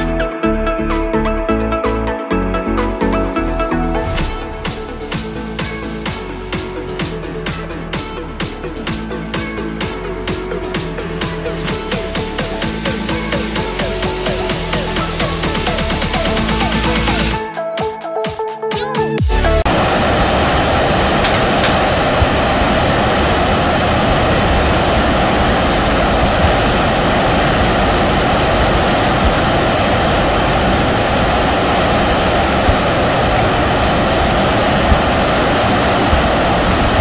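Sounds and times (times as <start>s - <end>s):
water rushing over weir: 19.7s - 37.0s.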